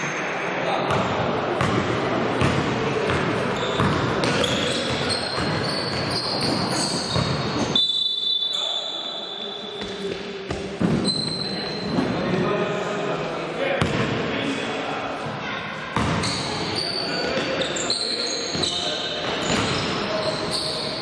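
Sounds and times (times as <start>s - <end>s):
basketball bouncing: 0.9s - 1.8s, 2.4s - 7.7s.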